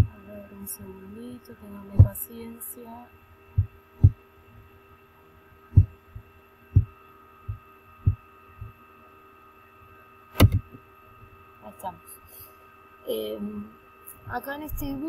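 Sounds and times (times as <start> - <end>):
faint electrical hum: 0.0 - 15.0
dull low thumps: 2.0 - 2.2, 3.5 - 4.2, 5.7 - 8.8, 10.4 - 10.8
sharp click: 10.3 - 10.8.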